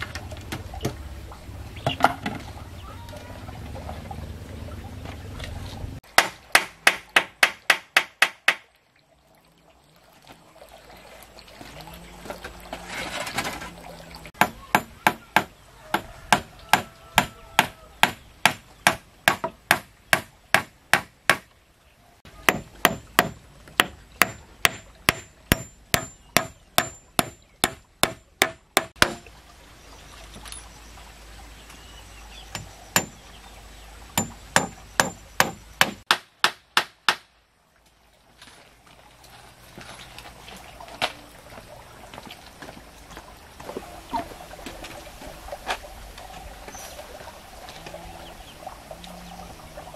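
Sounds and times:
hand tool striking wood: 6.1s - 8.6s, 14.4s - 21.5s, 22.4s - 29.3s, 32.5s - 33.2s, 34.2s - 37.3s.

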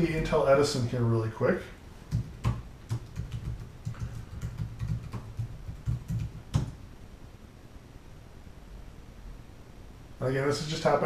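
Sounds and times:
typing on keyboard: 2.1s - 6.8s.

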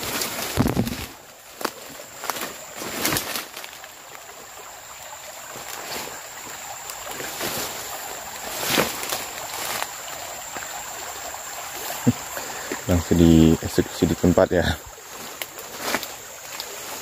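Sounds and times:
sharp crackles: 0.0s - 3.9s
leaves and undergrowth rustling: 0.0s - 17.0s.

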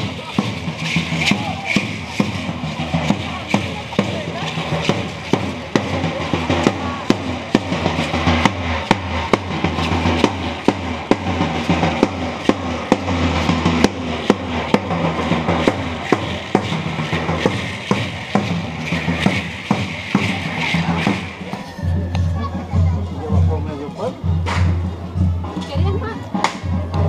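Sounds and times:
drum beaten with a stick: 0.0s - 27.0s.

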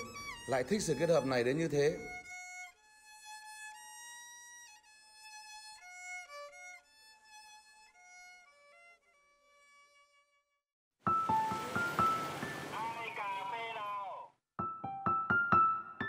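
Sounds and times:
solo violin melody: 0.0s - 10.6s.

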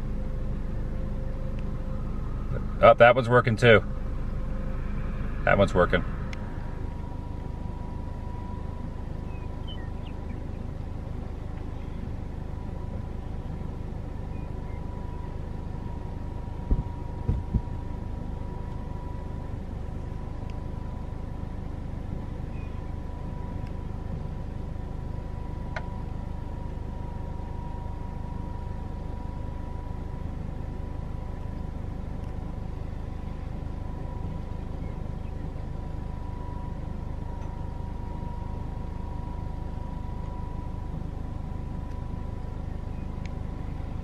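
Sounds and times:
pumpjack low rumble: 0.0s - 44.0s
thin steady whine: 0.0s - 44.0s
dull thumps: 16.7s - 17.7s.

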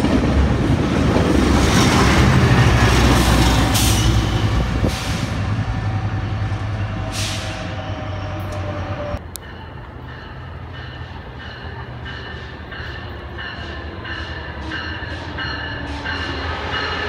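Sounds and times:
diesel train rumbling: 0.0s - 17.0s.

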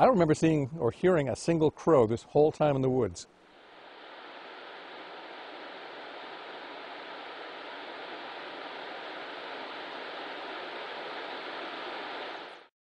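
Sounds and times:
faint steady tone: 1.6s - 12.7s
steady rushing noise: 3.5s - 12.7s.

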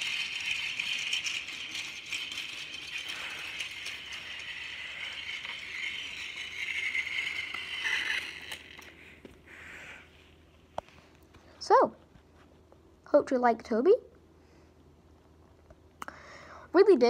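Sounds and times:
toy train motor whirring: 0.0s - 10.4s.

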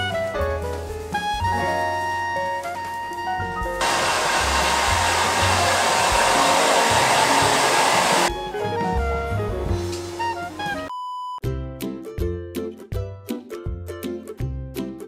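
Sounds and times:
background music: 0.0s - 15.0s
hair dryer blowing: 3.8s - 8.4s.

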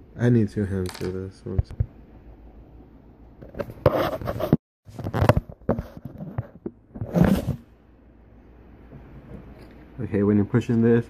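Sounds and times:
recording device handling noise: 0.8s - 2.0s, 3.4s - 7.7s
rubbing and scraping: 3.5s - 7.7s.

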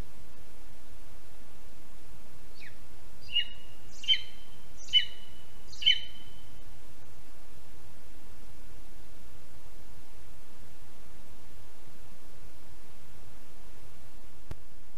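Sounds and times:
eagle yelping: 3.3s - 6.1s.

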